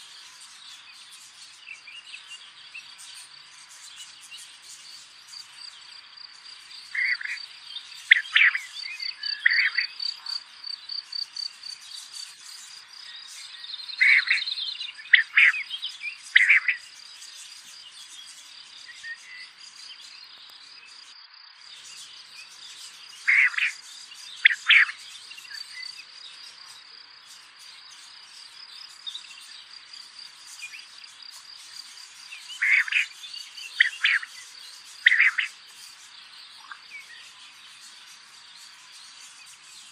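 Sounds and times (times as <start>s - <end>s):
insects trilling: 0.0s - 39.9s
bird calling: 6.8s - 11.7s, 13.9s - 16.9s, 23.2s - 23.8s, 24.4s - 26.0s, 32.5s - 35.6s.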